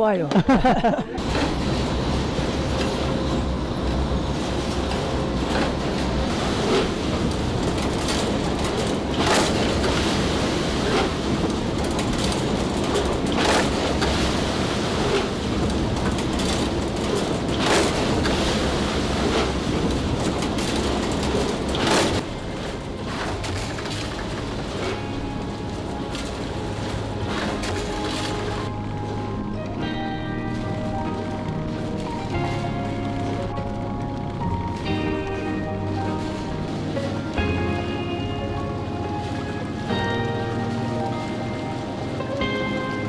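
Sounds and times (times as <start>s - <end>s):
machinery rumbling: 0.4s - 43.0s.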